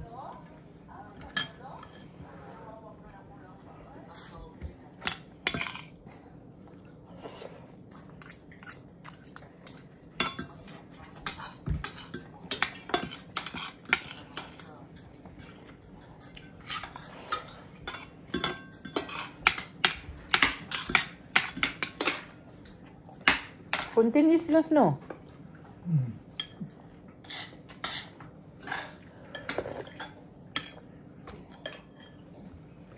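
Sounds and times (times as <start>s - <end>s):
cutlery clinking on plates: 5.0s - 6.0s, 8.2s - 22.4s.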